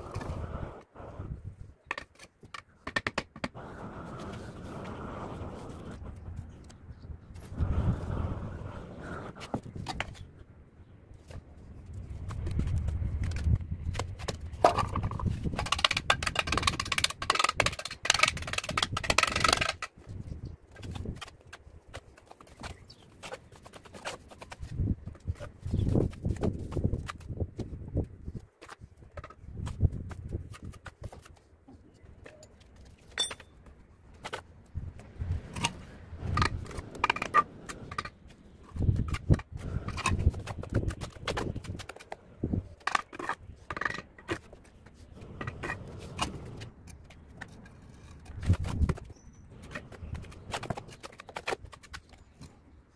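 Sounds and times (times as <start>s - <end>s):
trowel tapping and scraping bricks: 1.8s - 3.6s, 12.2s - 27.7s, 28.5s - 34.4s, 35.4s - 52.6s
ringing clink: 33.2s - 33.5s.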